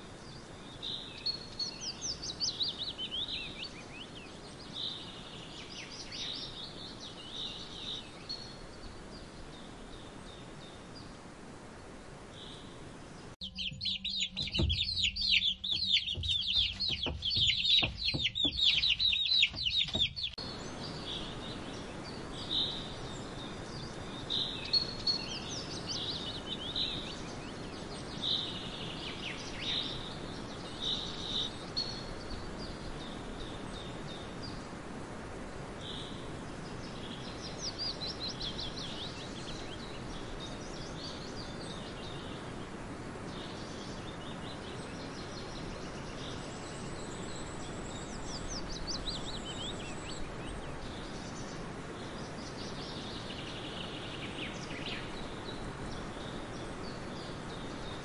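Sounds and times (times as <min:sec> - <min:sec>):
small birds chirping: 0:00.0 - 0:35.0, 0:35.7 - 0:58.0
chicks peeping rapidly: 0:13.4 - 0:20.4
soft knocks: 0:13.6 - 0:20.4.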